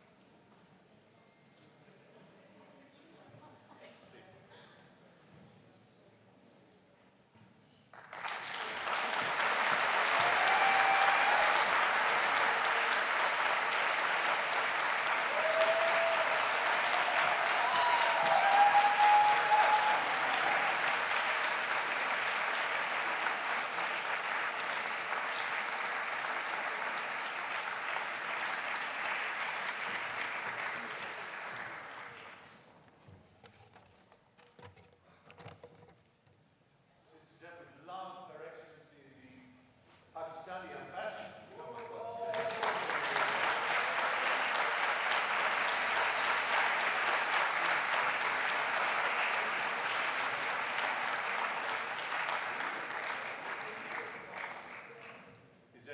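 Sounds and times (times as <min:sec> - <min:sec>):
audience applauding: 0:07.9 - 0:32.6, 0:41.6 - 0:55.4.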